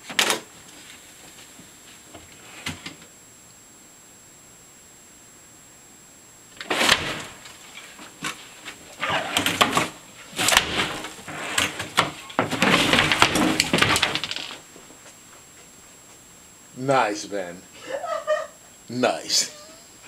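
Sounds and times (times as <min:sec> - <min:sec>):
drawer cabinet and chair knocking: 0:09.4 - 0:14.4.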